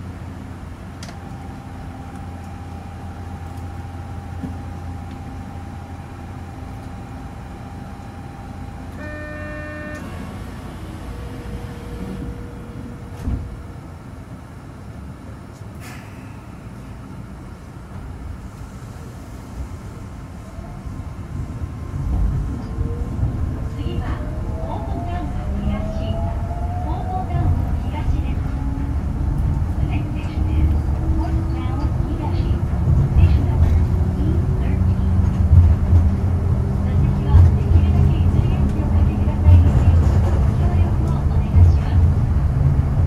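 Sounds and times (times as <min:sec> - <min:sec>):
train rumbling with whining tone: 0:00.0 - 0:43.0
chord-like train toot: 0:01.0 - 0:13.8, 0:23.8 - 0:35.3.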